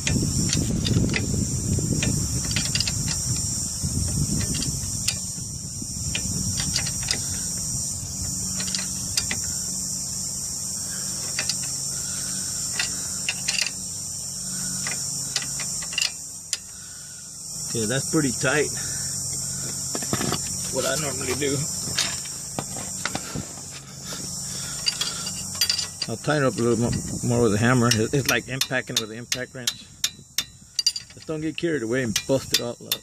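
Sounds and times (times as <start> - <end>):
insect chirring: 0.0 - 33.0
rubbing and handling noise: 19.3 - 27.3.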